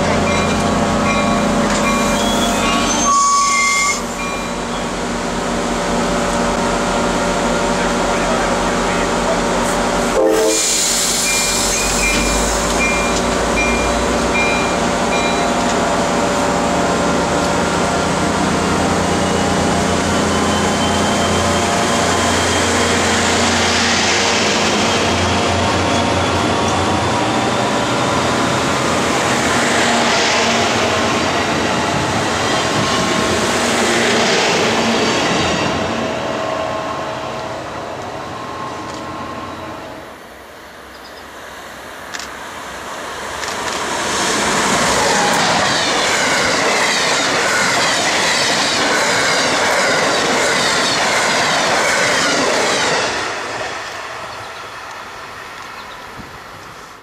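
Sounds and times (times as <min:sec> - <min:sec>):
diesel train engine hum: 0:00.0 - 0:57.0
train wheels rumbling on rails: 0:00.0 - 0:57.0
short beeps: 0:01.2 - 0:04.6.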